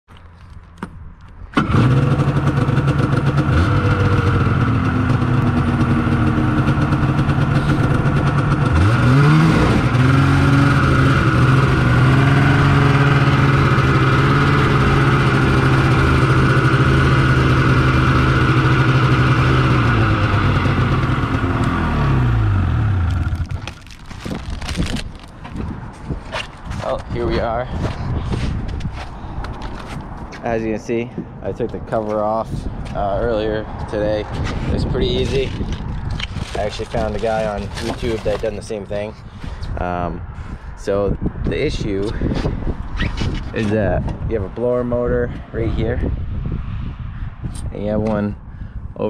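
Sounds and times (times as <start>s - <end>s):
snowmobile engine running: 1.6s - 24.8s.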